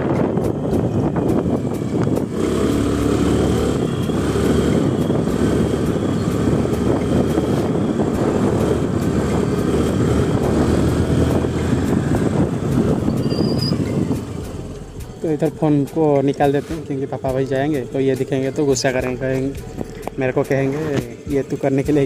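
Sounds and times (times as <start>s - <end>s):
scooter engine running: 0.0s - 15.4s
wind buffeting microphone: 0.0s - 15.8s.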